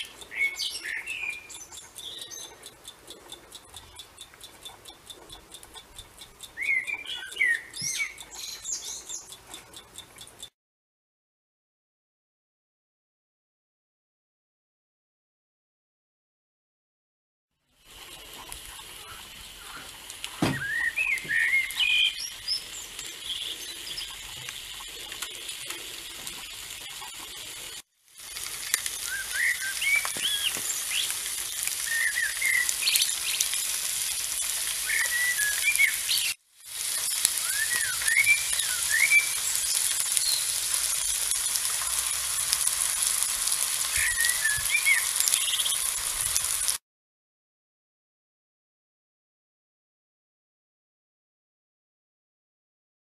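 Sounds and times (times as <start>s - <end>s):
small birds chirping: 0.0s - 10.5s, 17.6s - 46.8s
fish frying hiss: 17.7s - 46.8s.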